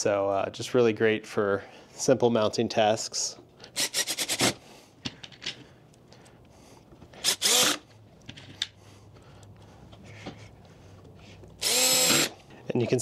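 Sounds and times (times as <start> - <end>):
cordless drill driving screws: 3.8 - 4.6, 7.2 - 7.9, 11.6 - 12.4.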